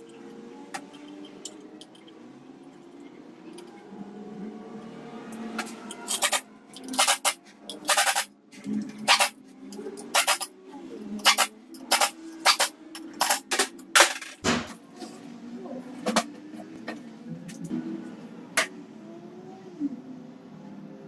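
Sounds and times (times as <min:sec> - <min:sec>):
pneumatic wrench bursts: 0:06.1 - 0:08.3, 0:09.0 - 0:09.4, 0:10.0 - 0:10.5, 0:11.2 - 0:13.5.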